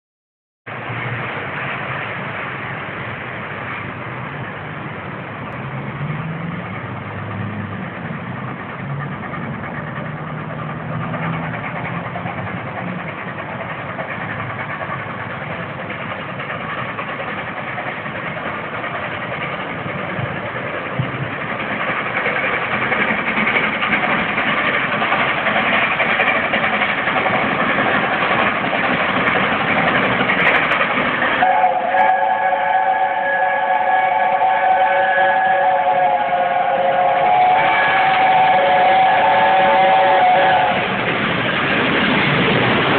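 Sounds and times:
steam locomotive working hard: 0:00.7 - 0:42.9.

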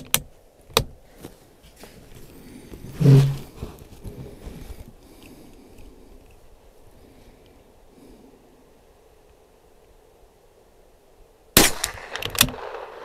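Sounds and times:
rifle bolt clicks and rustles: 0:00.0 - 0:01.3.

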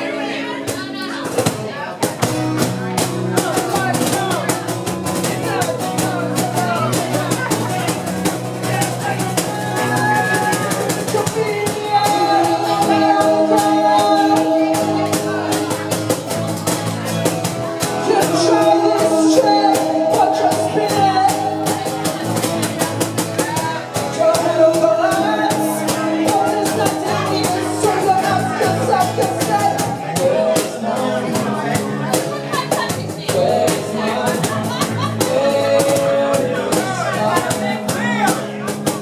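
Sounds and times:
people singing lead and harmony: 0:00.0 - 0:01.2, 0:08.9 - 0:16.6, 0:17.7 - 0:38.7
strummed acoustic guitars: 0:00.0 - 0:39.0
steady percussive beat: 0:00.7 - 0:39.0.

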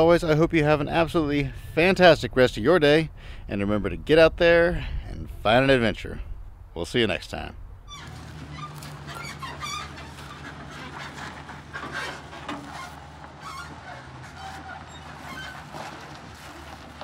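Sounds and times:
engine idling: 0:07.9 - 0:17.0.

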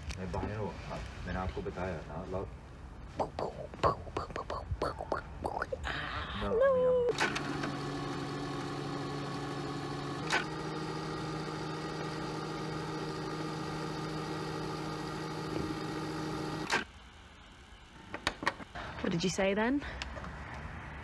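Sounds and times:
tape machine whirring: 0:07.1 - 0:17.1
short mechanical clicks: 0:16.5 - 0:16.9.

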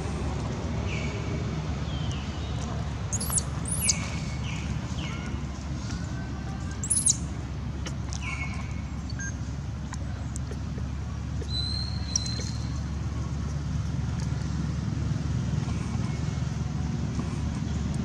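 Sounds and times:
baby monkey squealing: 0:03.1 - 0:04.0, 0:06.8 - 0:07.2.

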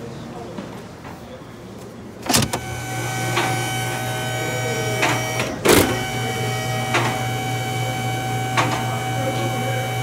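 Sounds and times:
vehicle lift motor and pump humming: 0:02.2 - 0:10.0.

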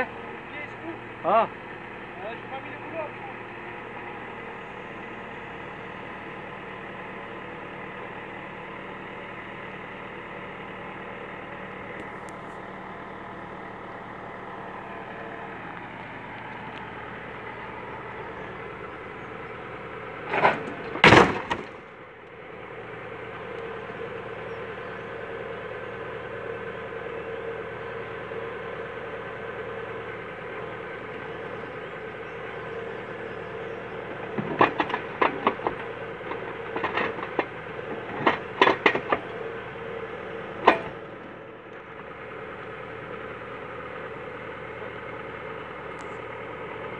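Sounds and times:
truck engine running: 0:00.0 - 0:46.9.

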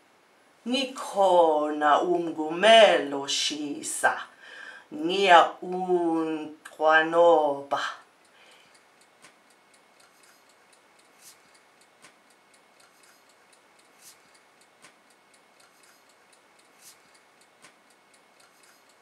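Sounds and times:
faint sharp ticks: 0:08.2 - 0:19.0.

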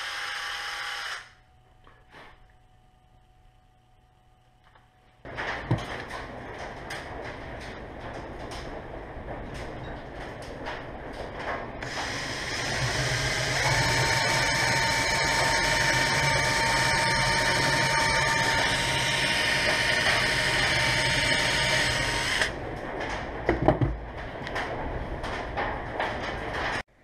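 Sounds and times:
power drill whining: 0:00.0 - 0:01.4, 0:11.8 - 0:22.5.

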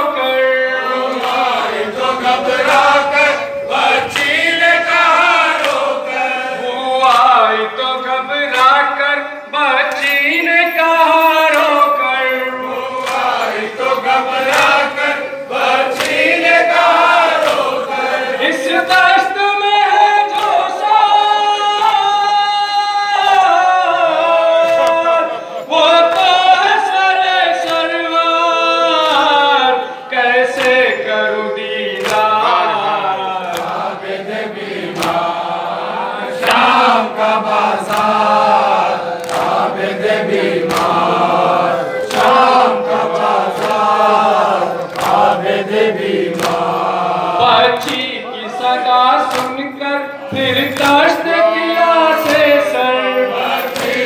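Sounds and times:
men chanting in unison: 0:00.0 - 0:54.0
hands slapping chests: 0:16.0 - 0:16.3, 0:34.9 - 0:35.3, 0:40.6 - 0:41.1, 0:44.8 - 0:45.4, 0:46.3 - 0:46.8, 0:47.8 - 0:48.1, 0:49.3 - 0:49.6, 0:53.6 - 0:54.0.

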